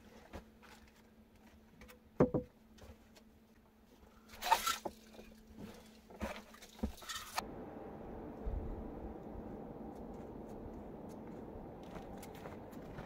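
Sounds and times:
rustling and crunching: 0:03.9 - 0:07.4.

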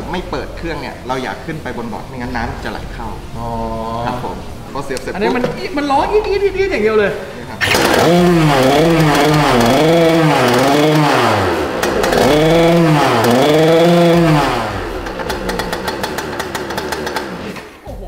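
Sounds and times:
small two-stroke engine revving: 0:07.6 - 0:17.8.

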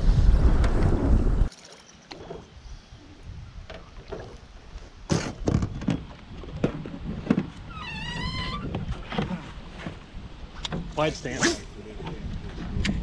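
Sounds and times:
wind rumble on microphone: 0:00.0 - 0:01.5, 0:02.5 - 0:04.0, 0:05.4 - 0:10.5, 0:11.8 - 0:13.0.

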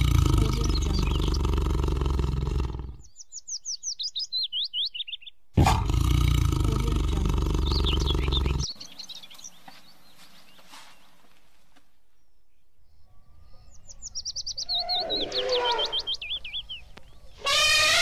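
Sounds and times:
tiger roaring: 0:00.0 - 0:03.0, 0:05.6 - 0:08.7
faint bird chirps: 0:06.8 - 0:11.4, 0:12.0 - 0:18.0.

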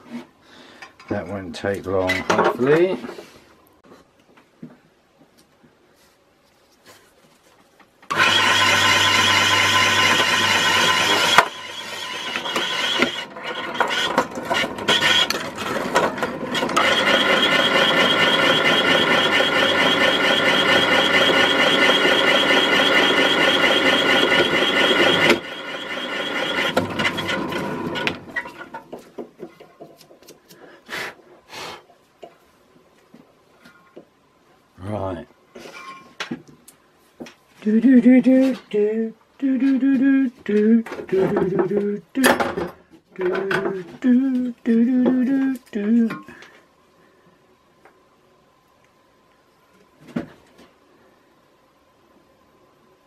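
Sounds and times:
bench drill boring through metal: 0:08.1 - 0:28.6.

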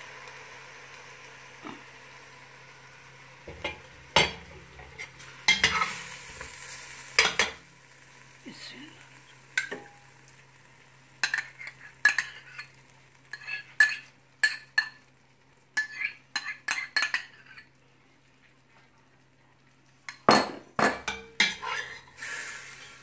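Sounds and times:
utensils clattering against pot: 0:03.5 - 0:05.9, 0:20.1 - 0:22.1.

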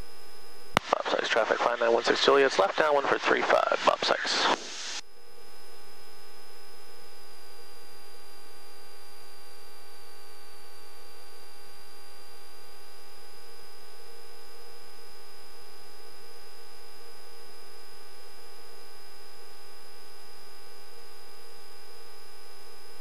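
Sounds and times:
electrical hum and whine: 0:00.0 - 0:23.0.

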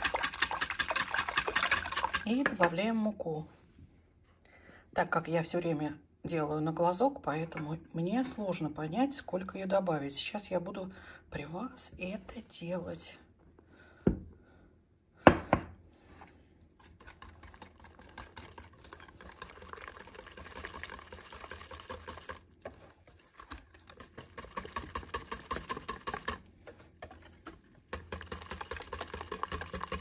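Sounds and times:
whisk clicking in metal saucepan: 0:00.0 - 0:02.7, 0:16.8 - 0:22.5, 0:23.4 - 0:26.5, 0:27.9 - 0:30.0.

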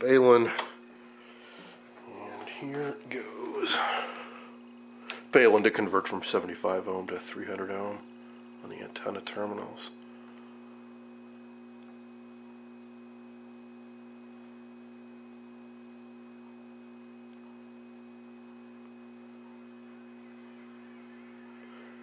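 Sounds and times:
television mains hum: 0:00.0 - 0:22.0.

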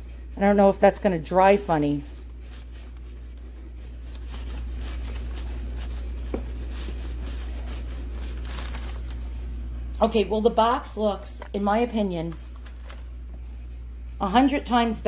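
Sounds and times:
steady low hum: 0:00.0 - 0:15.0
cloth rustling: 0:01.4 - 0:09.5
rag rubbing wooden box: 0:02.5 - 0:08.5.

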